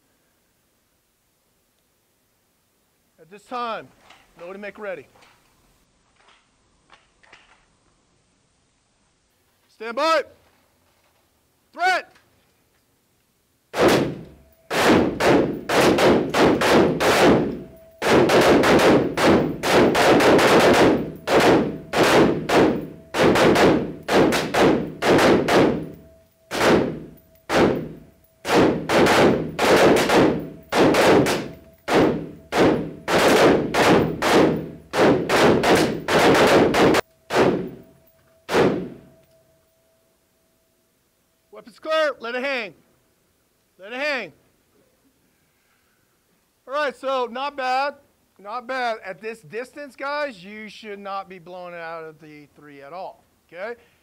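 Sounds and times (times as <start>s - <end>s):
rifle shots echoing indoors: 13.7s - 39.4s.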